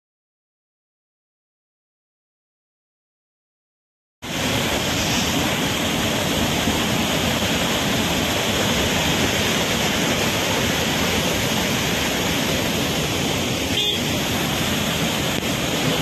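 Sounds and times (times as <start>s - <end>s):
water pouring over spillway: 4.2s - 16.0s.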